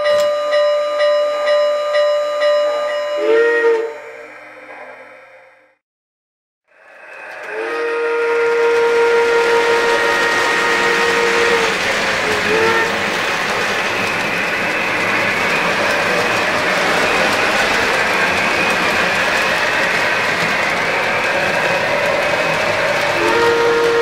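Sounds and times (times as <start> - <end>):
steam whistle: 0.0 - 4.3, 7.3 - 24.0
model train wheels rumbling on rails: 6.7 - 24.0.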